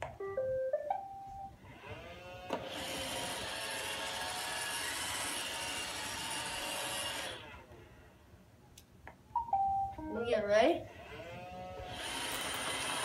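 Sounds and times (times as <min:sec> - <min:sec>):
robot vacuum whirring: 0:01.7 - 0:07.7, 0:11.0 - 0:13.0.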